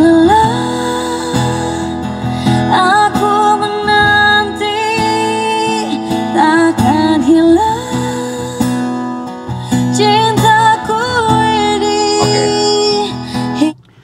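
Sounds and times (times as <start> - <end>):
plucked acoustic guitar: 0.0 - 14.0
person singing: 10.8 - 13.1.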